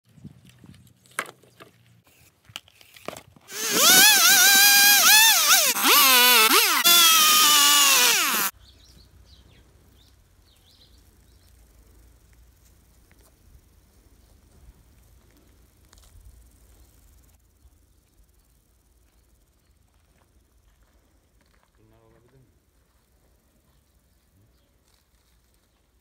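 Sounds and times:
chainsaw cutting wood: 3.5s - 8.5s.

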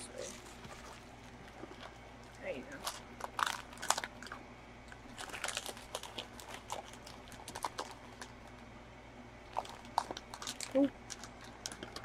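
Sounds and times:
plastic figures clicking and crinkling: 5.1s - 8.4s, 9.5s - 12.0s.

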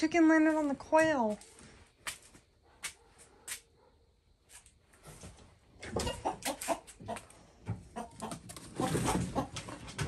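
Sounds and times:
chicken clucking: 5.8s - 10.0s.

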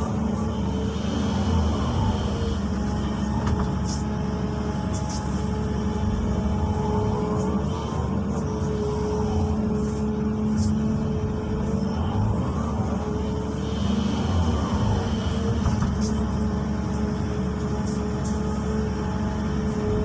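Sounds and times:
excavator diesel engine running: 0.0s - 20.0s.

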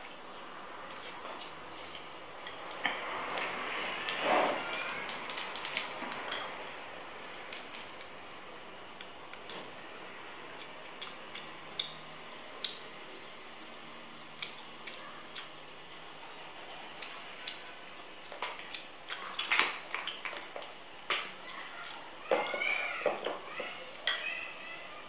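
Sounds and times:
crab shell cracking: 4.8s - 6.3s.

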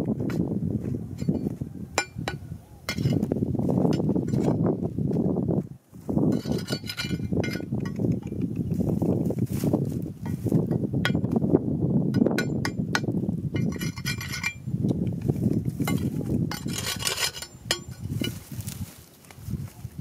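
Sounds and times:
metal tool scraping stones: 1.2s - 4.8s, 6.2s - 9.0s, 12.1s - 18.8s.

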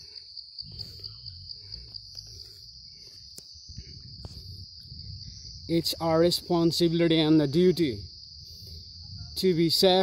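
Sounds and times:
insect trilling: 0.0s - 10.0s
low rumble: 0.7s - 6.5s.

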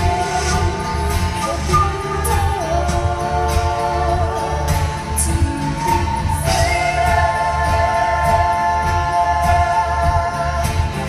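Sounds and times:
bass: 0.0s - 11.0s
person singing: 0.0s - 11.0s
steady drum beat: 0.0s - 11.0s.

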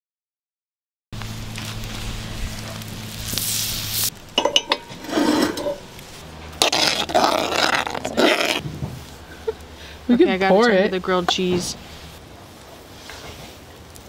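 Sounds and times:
steady low hum: 1.2s - 12.6s
pots and utensils clattering: 4.3s - 5.9s.

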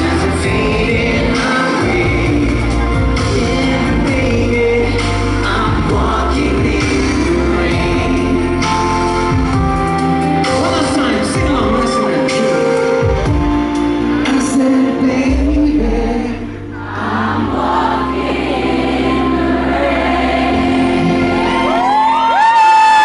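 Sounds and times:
audience screaming and cheering: 0.0s - 10.3s, 16.7s - 23.0s.

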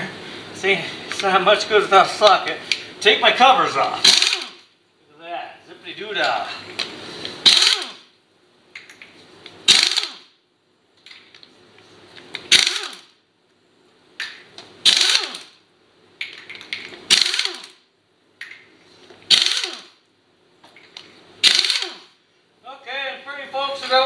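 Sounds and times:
pneumatic impact wrench bursts: 4.0s - 4.7s, 7.4s - 8.1s, 9.6s - 10.4s, 12.4s - 13.2s, 14.8s - 15.6s, 17.1s - 17.8s, 19.3s - 20.0s, 21.4s - 22.2s
air motor whine: 5.9s - 8.1s.

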